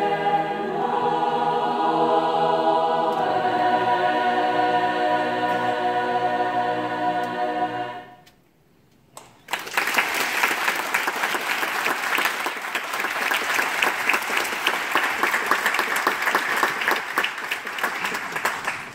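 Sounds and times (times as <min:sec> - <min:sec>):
choir singing a chord: 0:00.0 - 0:08.3
audience applauding: 0:09.5 - 0:18.9.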